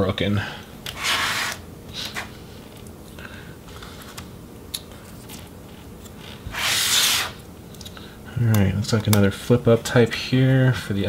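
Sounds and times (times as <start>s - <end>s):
laptop scraping across tabletop: 1.0s - 2.3s, 6.4s - 7.4s.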